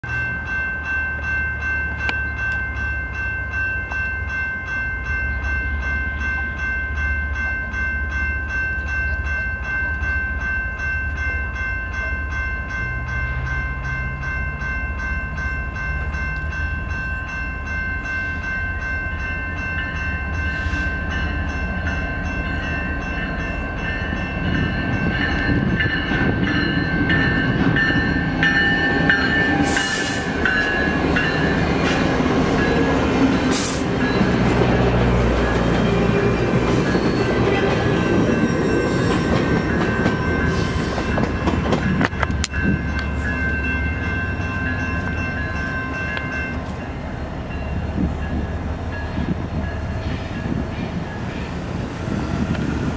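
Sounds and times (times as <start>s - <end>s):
diesel locomotive engine rumble: 0.0s - 52.9s
wheel and rail noise: 0.0s - 52.9s.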